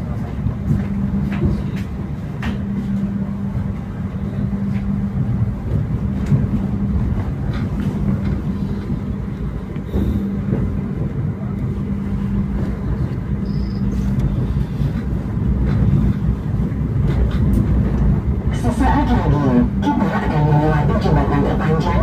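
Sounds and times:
train rumbling: 0.0 - 22.0.

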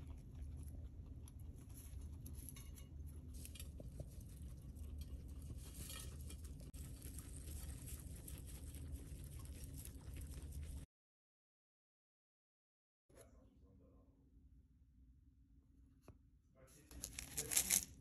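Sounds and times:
guinea pigs crunching hay: 0.0 - 10.9, 16.8 - 18.0.

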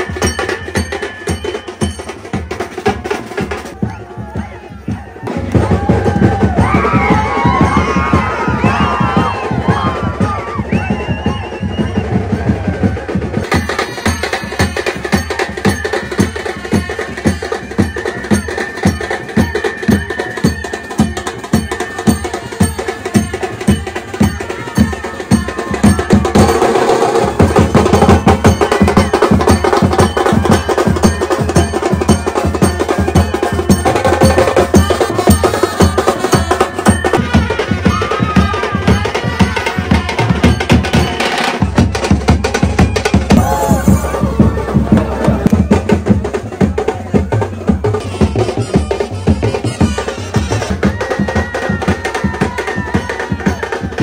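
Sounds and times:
fast steady drumming: 0.0 - 54.0
held melody note: 42.5 - 46.6.

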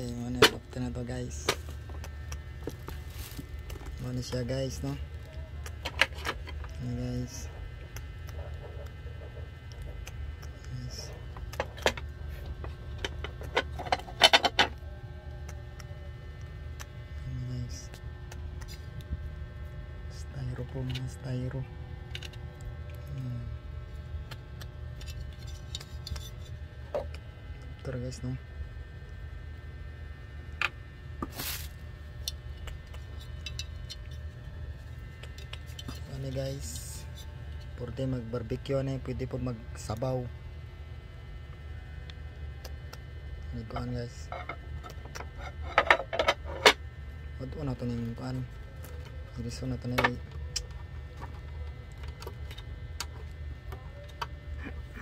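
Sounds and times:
steady low hum: 0.0 - 55.0
plastic film crackling: 1.6 - 4.0.

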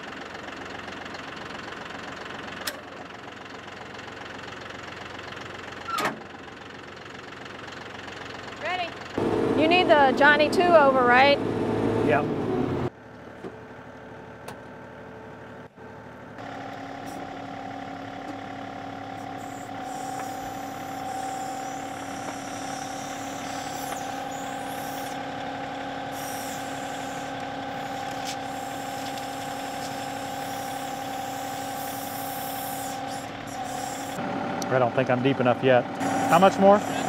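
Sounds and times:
tractor diesel engine running: 0.0 - 37.0.

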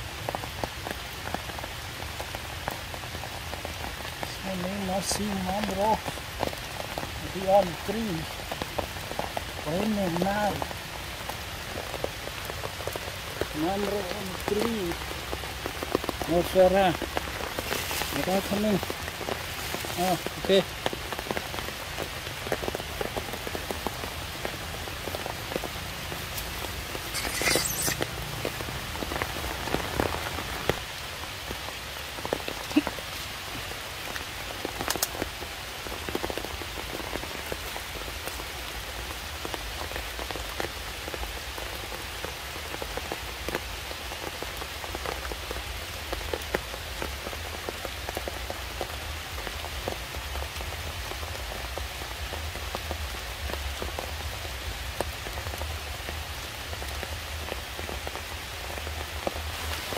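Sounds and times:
steady rain falling: 0.0 - 59.9
sharp drips and taps: 34.1 - 35.3.

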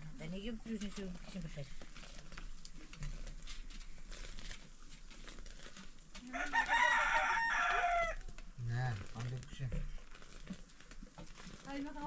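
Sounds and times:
rooster crowing: 6.3 - 8.2.

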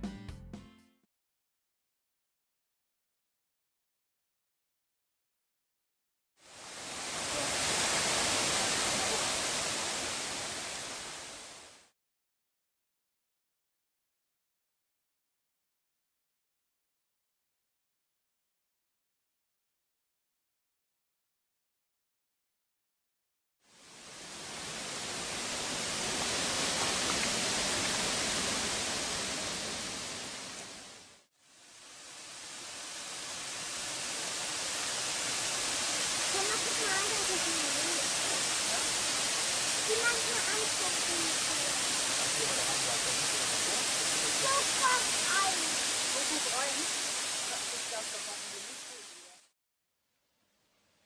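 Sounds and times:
water pouring over dam wall: 6.4 - 11.8, 23.8 - 49.5.

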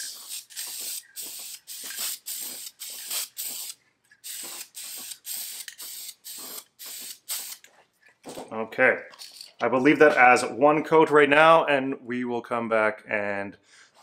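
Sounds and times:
spray can hissing: 0.0 - 7.7.

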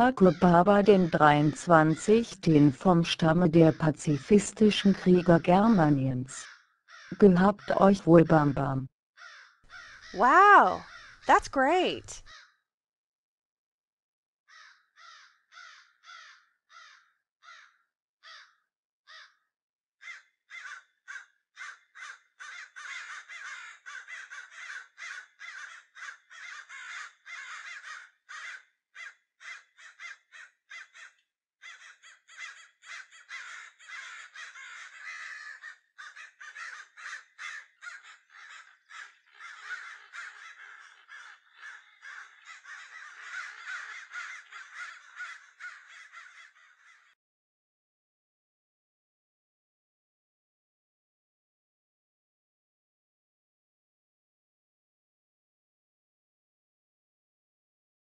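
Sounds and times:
harsh bird calls: 29.4 - 47.2.

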